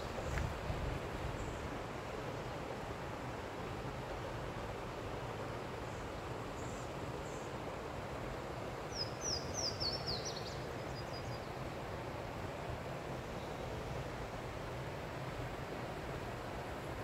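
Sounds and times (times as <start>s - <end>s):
outdoor hiss: 0.0s - 17.0s
songbird singing: 8.9s - 11.6s.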